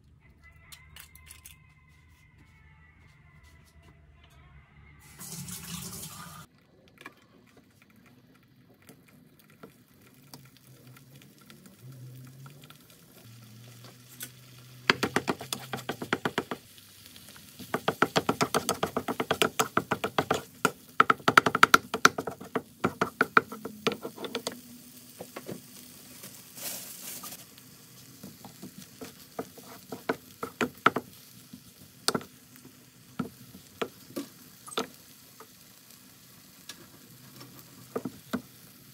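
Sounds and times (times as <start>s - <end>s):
eggs sizzling in a pan: 7.8s - 38.9s
spatula tapping and scraping: 14.9s - 16.6s, 17.6s - 24.6s, 28.5s - 31.2s, 32.0s - 32.3s.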